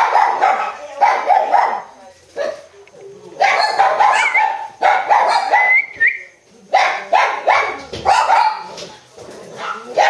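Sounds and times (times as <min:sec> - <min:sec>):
puppy barking: 0:00.0 - 0:02.7, 0:03.4 - 0:05.8, 0:06.7 - 0:08.8, 0:09.6 - 0:10.0.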